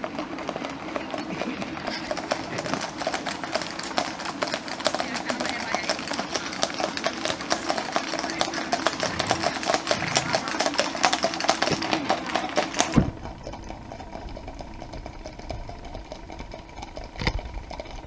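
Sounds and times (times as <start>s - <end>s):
horse hooves on wet asphalt: 0.0s - 18.0s
low rumble: 8.6s - 12.3s, 12.9s - 18.0s.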